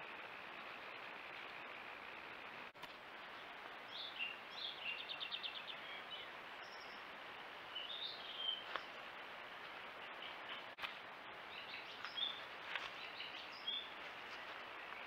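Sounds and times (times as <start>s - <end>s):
microphone hiss: 0.0s - 15.0s
songbird chirping and trilling: 3.2s - 9.0s, 10.0s - 15.0s.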